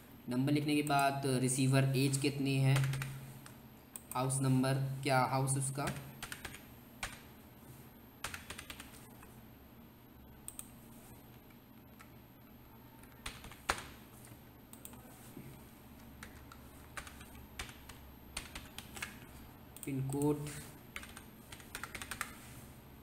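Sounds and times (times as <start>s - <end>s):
computer keyboard typing: 2.1s - 3.2s, 5.8s - 7.3s, 8.2s - 9.3s, 13.0s - 15.0s, 16.0s - 22.5s.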